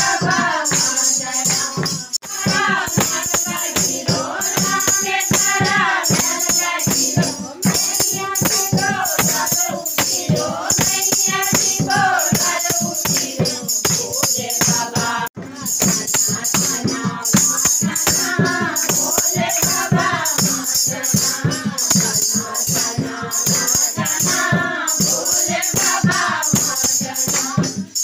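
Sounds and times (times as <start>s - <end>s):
hand clapping: 0.0s - 15.0s, 17.4s - 20.7s, 25.1s - 27.6s
tambourines jingling: 0.0s - 28.0s
women singing together: 0.0s - 28.0s.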